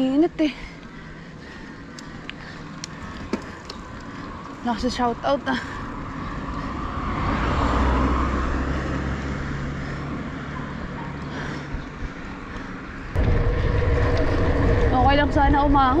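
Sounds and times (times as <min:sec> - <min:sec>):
vehicle passing: 0:01.0 - 0:16.0
wind buffeting microphone: 0:13.1 - 0:16.0.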